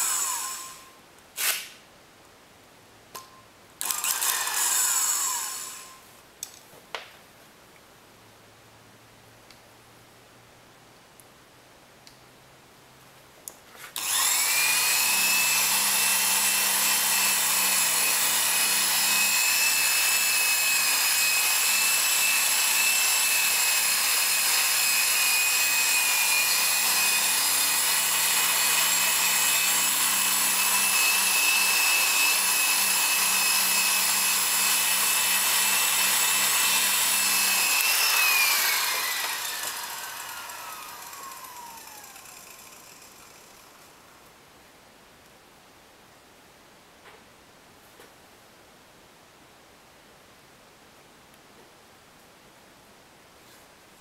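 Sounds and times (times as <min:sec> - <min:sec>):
power drill whining: 0:00.0 - 0:01.5, 0:03.8 - 0:06.0, 0:14.0 - 0:43.9.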